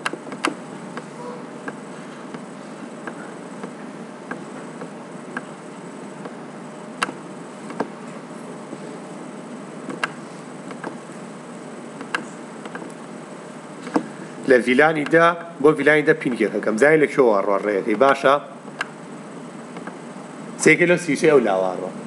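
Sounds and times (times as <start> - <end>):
computer mouse clicking: 0.0 - 5.5, 7.0 - 7.9, 9.9 - 11.0, 12.0 - 13.0.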